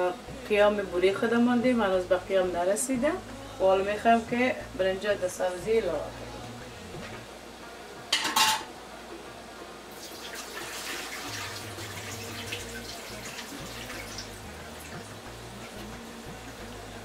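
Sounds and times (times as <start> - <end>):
metal utensil clatter: 8.1 - 8.7
water boiling and bubbling: 9.9 - 17.0.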